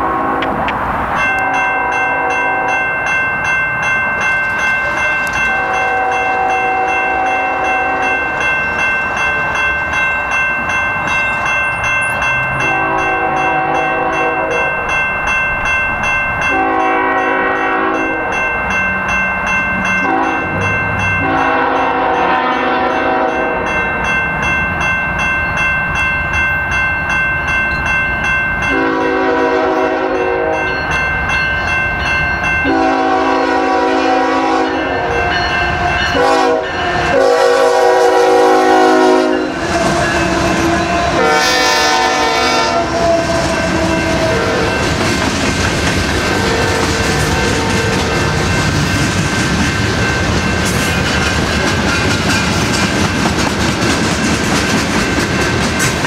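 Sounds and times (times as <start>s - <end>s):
locomotive air horn blasts: 0.0s - 0.6s, 5.4s - 8.2s, 12.6s - 14.7s, 16.5s - 18.2s, 20.0s - 20.5s, 21.2s - 23.7s, 28.7s - 30.7s, 32.6s - 35.4s, 36.1s - 44.8s, 46.3s - 48.4s
electronic grade-crossing bell: 1.1s - 56.0s.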